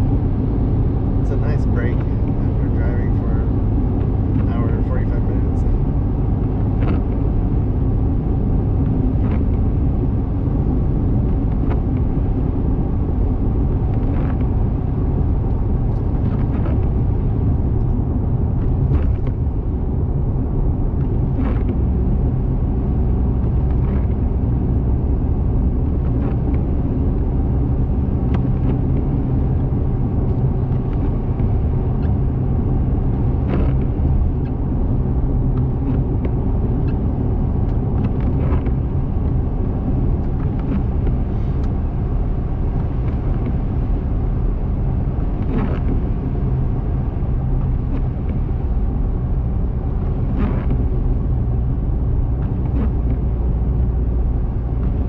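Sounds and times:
car road and engine rumble: 0.0 - 55.0.

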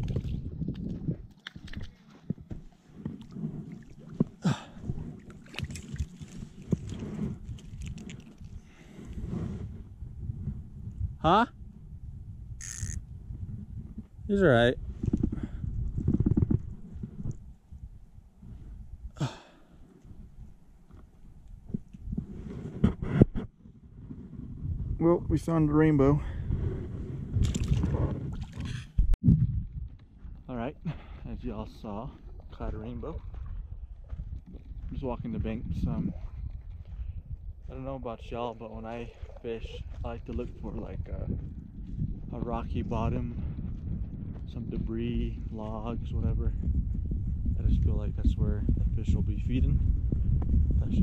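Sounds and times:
fish flopping and splashing: 0.0 - 9.0
wind rumble on microphone: 0.0 - 51.0.

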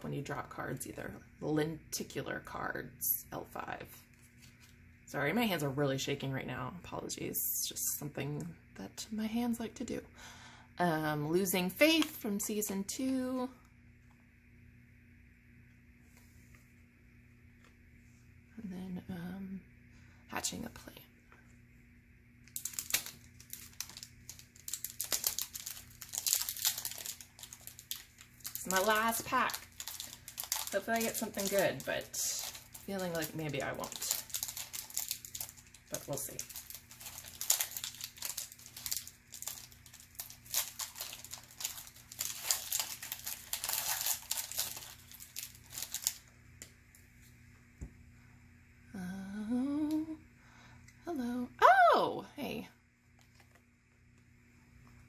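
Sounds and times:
wrapper crinkling: 22.5 - 46.3.

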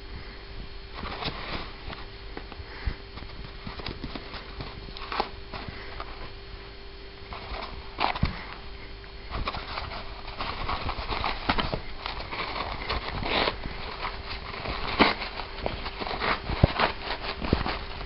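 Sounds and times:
cat clawing paper towel roll: 9.3 - 18.0.

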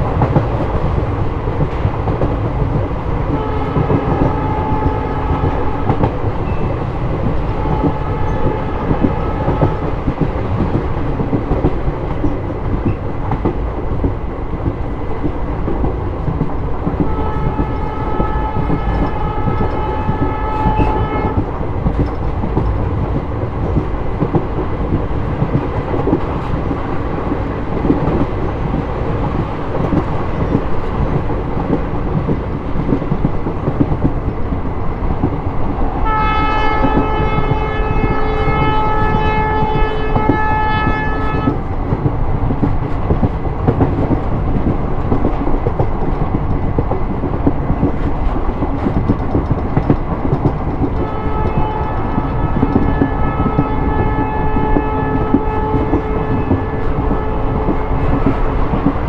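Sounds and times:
train rumble and wheel clatter: 0.0 - 59.0
locomotive horn blasts: 3.3 - 6.0, 7.5 - 9.9, 17.0 - 21.5, 36.0 - 41.6, 51.0 - 58.4.

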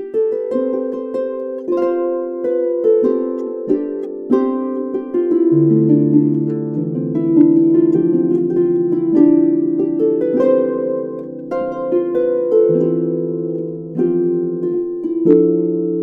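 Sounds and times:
harp playing: 0.0 - 16.0.

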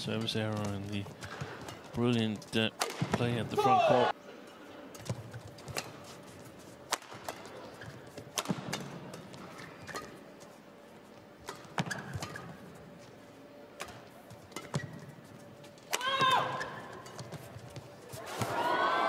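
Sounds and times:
rackets striking shuttlecock: 2.8 - 3.4, 6.9 - 7.6, 8.2 - 10.2, 11.4 - 12.6, 13.8 - 15.1
shoe squeaks on court floor: 11.8 - 12.6.

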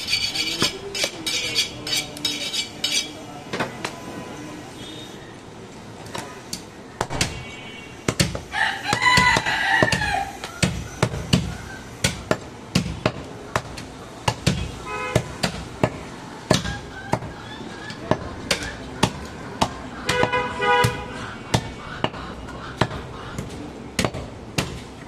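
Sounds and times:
rooster crowing: 8.5 - 10.4.

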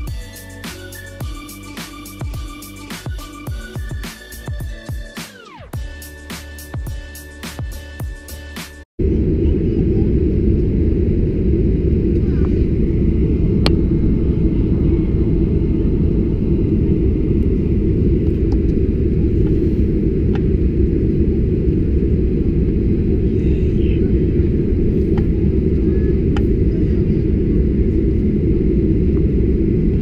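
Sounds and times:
airplane cabin rumble while taxiing: 9.0 - 30.0.

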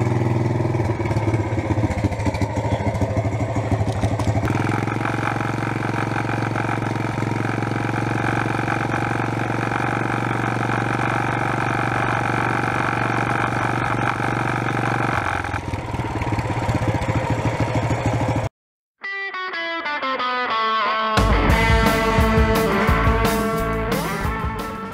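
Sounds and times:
small motorcycle engine running: 0.0 - 18.5.

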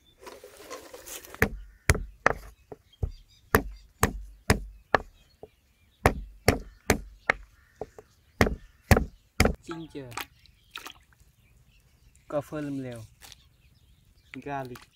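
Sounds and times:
pestle pounding on wooden board: 1.4 - 5.2, 6.0 - 9.6.

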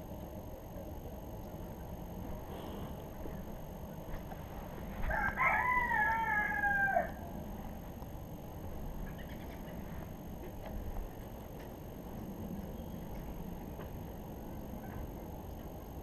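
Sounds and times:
rooster crowing: 5.0 - 7.4.

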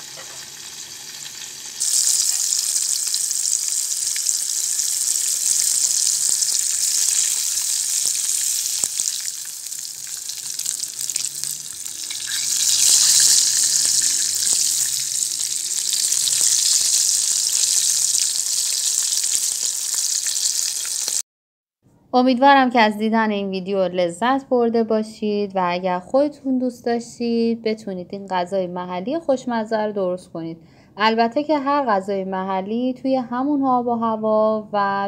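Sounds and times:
fish sizzling in hot oil: 0.0 - 21.2.

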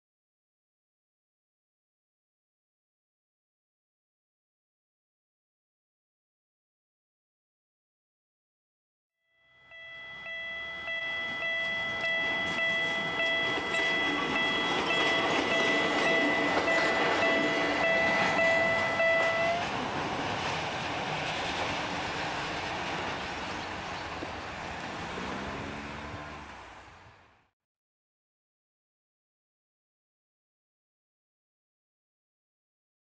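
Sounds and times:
level crossing signal ringing: 9.3 - 19.6
train motor whine: 9.6 - 19.9
train wheels rumbling on rails: 10.1 - 27.0.

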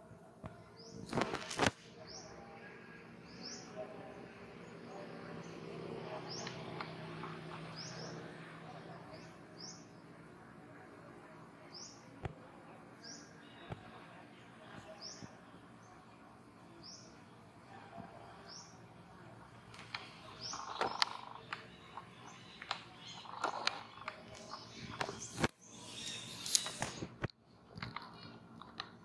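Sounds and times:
outdoor background noise: 0.0 - 29.0
bird chirping: 0.5 - 10.4, 11.6 - 27.1
sharp clicks: 19.7 - 29.0.

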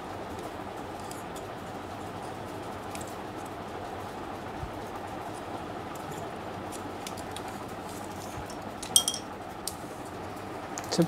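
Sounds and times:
steady background hum: 0.0 - 11.0
sharp metallic clink: 9.0 - 9.3.

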